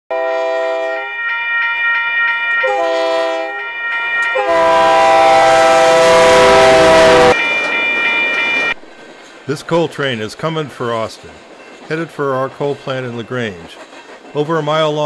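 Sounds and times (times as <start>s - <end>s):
locomotive air horn blasts: 0.1s - 1.2s, 2.6s - 7.4s
locomotive rumbling past: 0.1s - 15.0s
crossing bell ringing: 0.7s - 13.7s.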